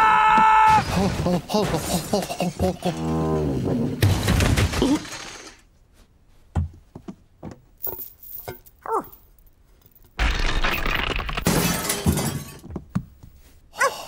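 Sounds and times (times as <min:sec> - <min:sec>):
glass breaking crash: 0:00.7 - 0:03.0, 0:04.0 - 0:05.5, 0:10.2 - 0:12.6
falling creak-like tones: 0:04.8 - 0:05.6.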